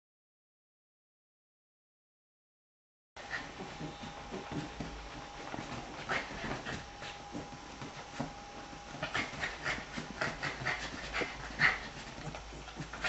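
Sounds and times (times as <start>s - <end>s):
dog panting quickly: 3.2s - 13.0s.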